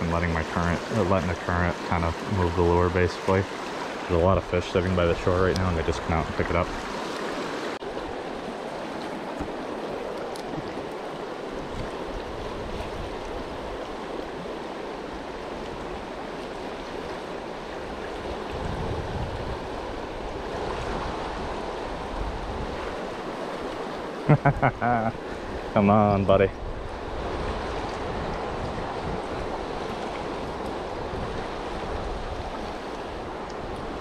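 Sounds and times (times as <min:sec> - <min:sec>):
river rushing: 0:00.0 - 0:34.0.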